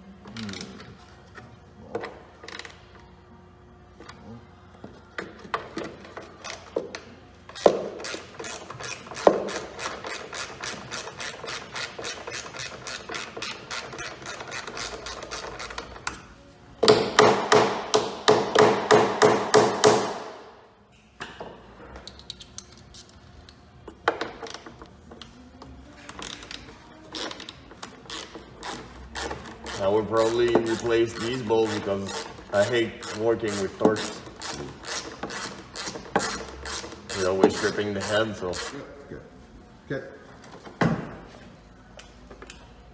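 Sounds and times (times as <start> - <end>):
hand ratchet clicking: 6.1 - 16.2, 26.1 - 38.8.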